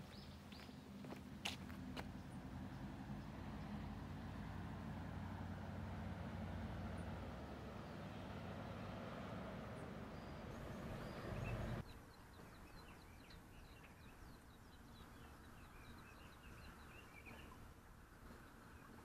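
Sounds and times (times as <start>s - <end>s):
small birds chirping: 0.0s - 3.9s, 6.7s - 17.7s.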